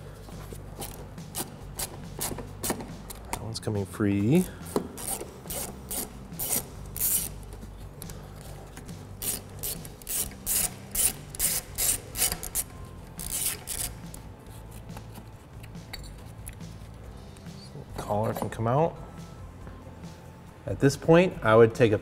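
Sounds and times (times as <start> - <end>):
hand ratchet clicking: 4.7 - 7.4, 9.2 - 14.2.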